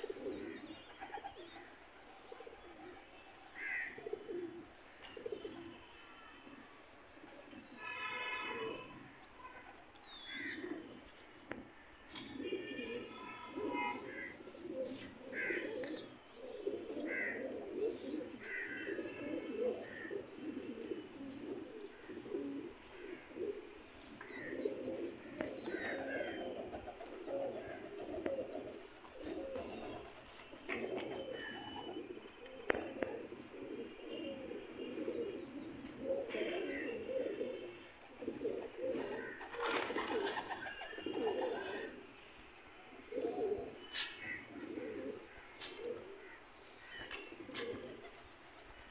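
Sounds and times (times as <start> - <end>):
pigeons cooing: 0.0 - 48.9.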